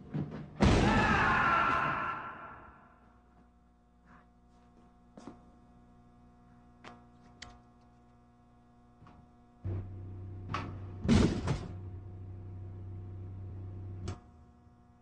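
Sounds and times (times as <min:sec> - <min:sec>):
vending machine humming: 0:09.4 - 0:15.0.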